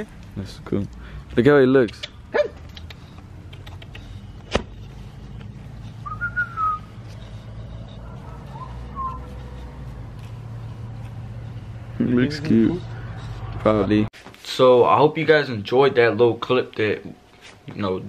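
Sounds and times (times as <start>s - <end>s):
steady low hum: 0.0s - 14.1s
short whistled notes: 6.0s - 7.0s, 8.5s - 9.3s.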